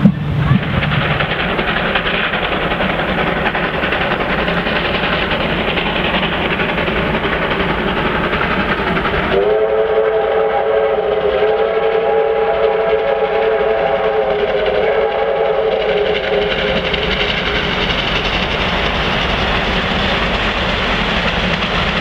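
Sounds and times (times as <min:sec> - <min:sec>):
steam locomotive passing: 0:00.0 - 0:22.0
steam whistle chord: 0:09.3 - 0:16.1.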